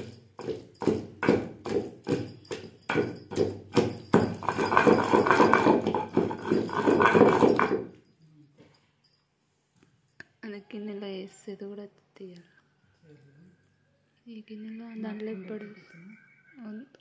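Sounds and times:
pestle pounding in stone mortar: 0.0 - 8.0.

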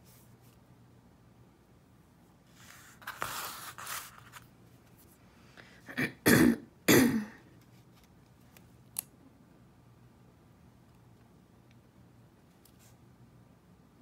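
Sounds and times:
person coughing: 5.9 - 7.4.

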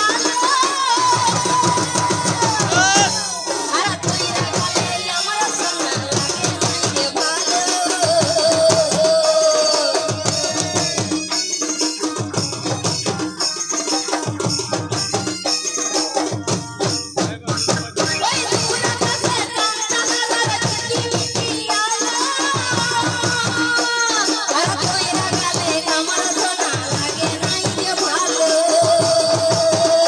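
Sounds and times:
jingling percussion: 0.0 - 30.0
woman singing: 0.0 - 30.0
barrel drums beating: 1.1 - 19.6.

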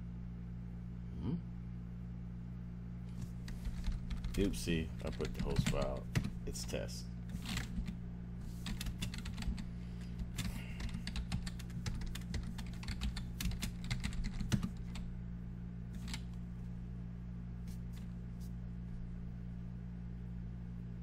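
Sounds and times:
steady low hum: 0.0 - 21.0
keyboard typing: 3.4 - 6.4, 7.3 - 15.0, 16.0 - 16.3.

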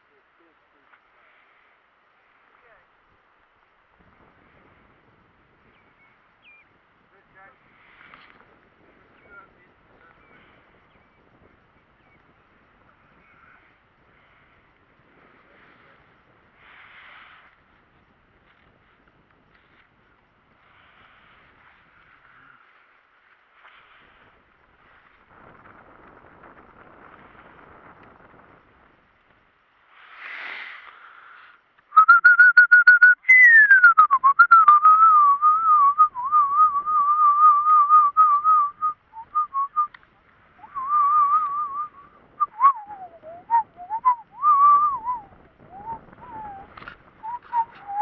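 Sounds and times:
person whistling: 31.9 - 39.9, 40.6 - 48.0.

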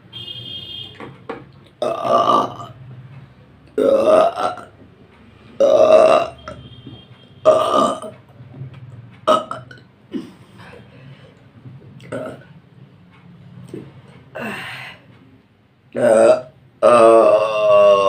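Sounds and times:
woman burping loudly: 1.8 - 2.8, 3.8 - 4.7, 5.6 - 6.5, 7.5 - 8.2, 9.3 - 10.3, 12.1 - 12.4, 16.0 - 18.0.

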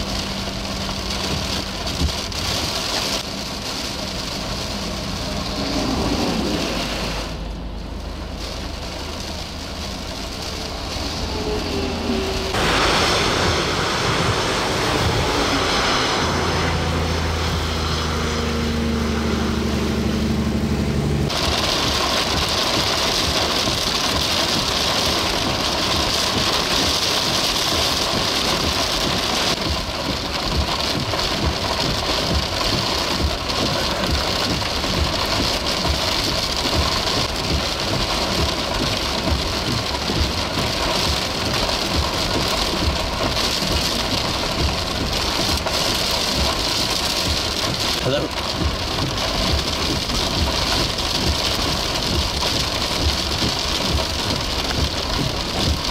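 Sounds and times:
engine humming: 0.0 - 55.9
heavy rain hissing: 0.0 - 55.9
low rumble: 0.0 - 55.9
wind buffeting: 10.5 - 20.0.

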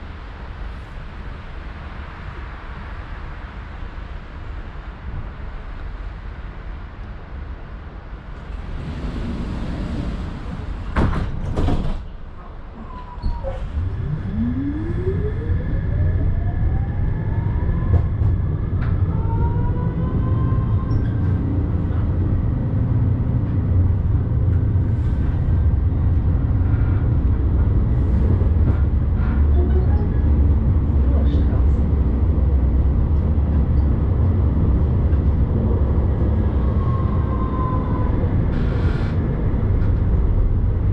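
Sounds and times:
wheels rumbling on rails: 0.0 - 40.9
tram motor whine rising: 12.8 - 28.5.

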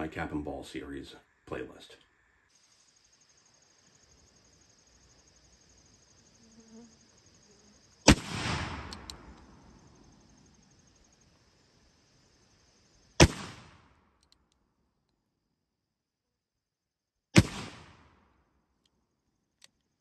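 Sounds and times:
insects buzzing: 0.0 - 15.0
gunshot crack with echo: 8.1 - 9.3, 13.2 - 13.9, 17.4 - 18.2.

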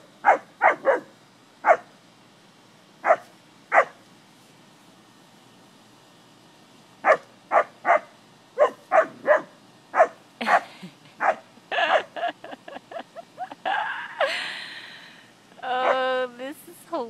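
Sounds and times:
dog barking: 0.2 - 1.9, 3.0 - 4.0, 7.0 - 10.6, 11.2 - 12.1.

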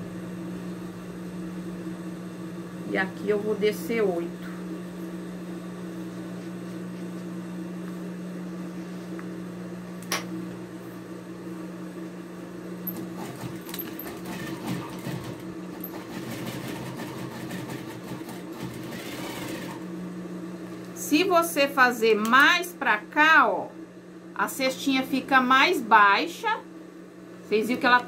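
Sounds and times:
steady low hum: 0.0 - 16.6, 19.7 - 28.0
sewing machine stitching: 12.9 - 19.8.

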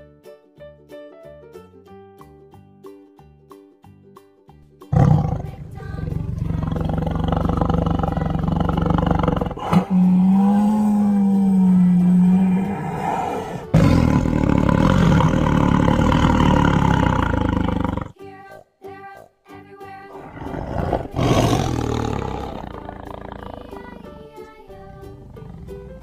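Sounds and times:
tiger roaring and growling: 4.9 - 18.2, 20.1 - 26.0.

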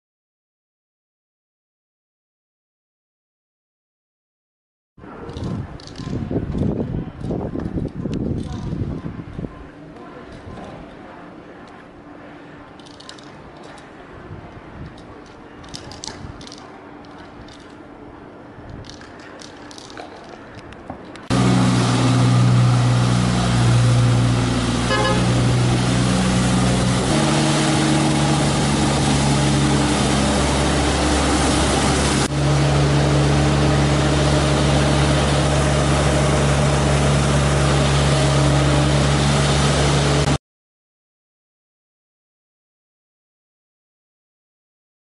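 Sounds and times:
faint street ambience: 5.0 - 40.3
street sweeper engine drone: 9.1 - 40.4.

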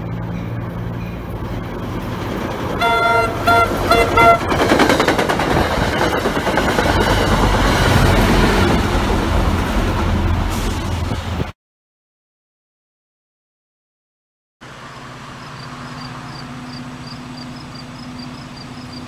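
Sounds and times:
train wheels clattering on rails: 0.0 - 11.3
diesel locomotive engine: 0.0 - 11.5, 14.6 - 19.0
train cars rumbling: 0.0 - 11.5
train horn blasts: 2.8 - 4.6.

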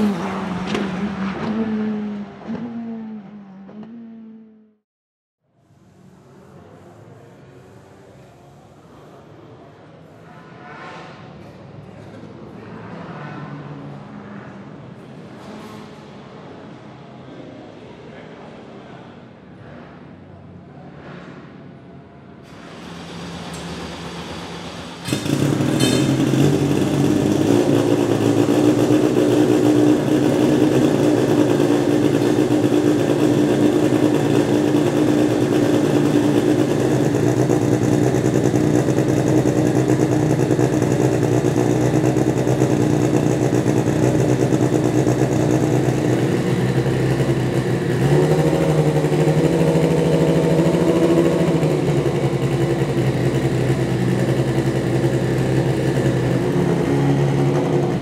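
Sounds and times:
engine revving: 0.0 - 4.8, 22.8 - 58.0
race car engine idling: 22.8 - 58.0.

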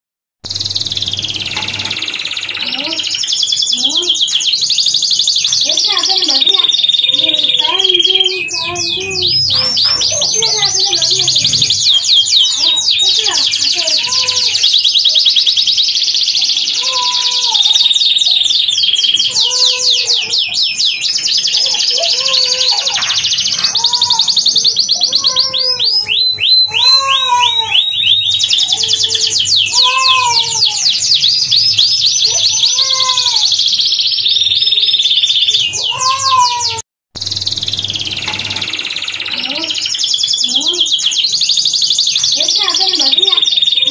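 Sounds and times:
canary singing trills: 0.4 - 43.9.

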